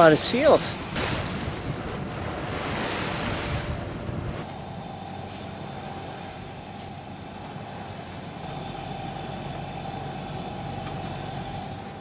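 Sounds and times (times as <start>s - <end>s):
boat engine running: 0.8s - 12.0s.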